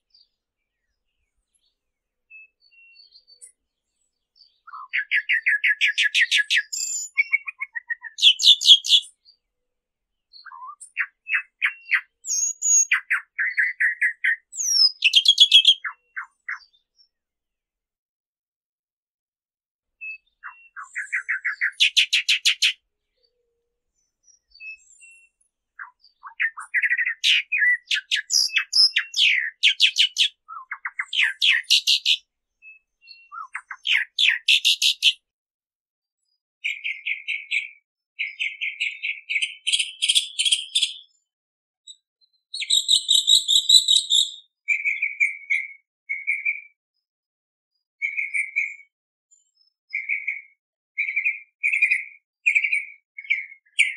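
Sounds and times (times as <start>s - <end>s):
mockingbird scratchy chattering song: 4.7s - 9.0s, 10.4s - 16.3s, 20.8s - 22.8s, 26.2s - 32.2s, 33.3s - 35.2s, 38.2s - 41.0s, 42.6s - 45.2s.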